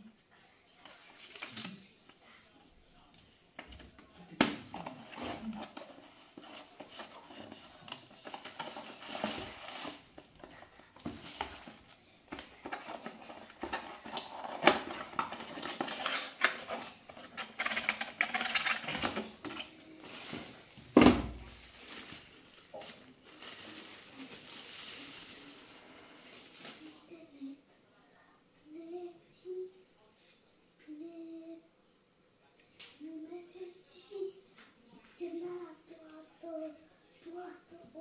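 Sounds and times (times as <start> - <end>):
packaging rustling and crinkling: 4.6 - 27.1.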